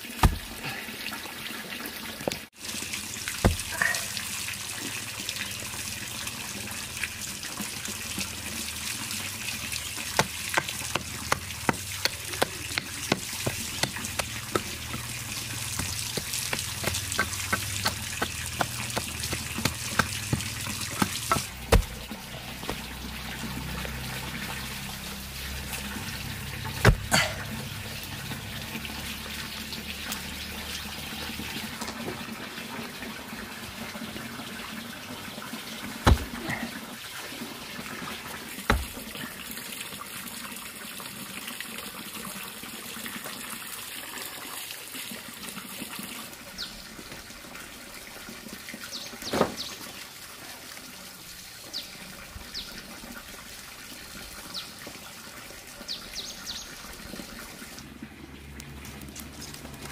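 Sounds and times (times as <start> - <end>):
pork fat sizzling: 2.2 - 31.7.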